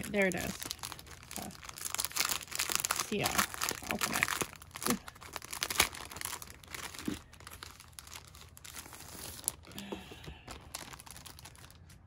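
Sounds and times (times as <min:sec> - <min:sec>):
plastic bag crinkling and rustling: 0:00.0 - 0:12.0.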